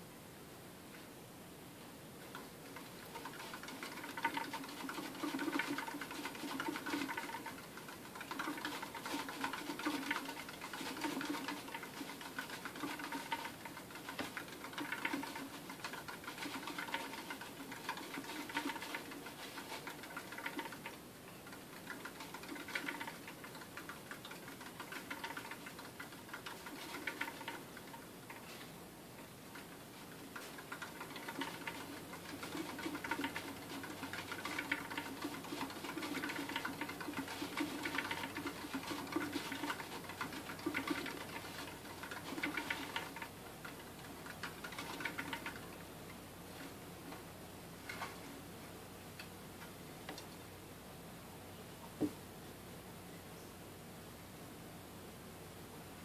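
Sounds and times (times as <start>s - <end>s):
exercise wheel ticking rattle: 2.2s - 28.6s, 29.5s - 45.8s.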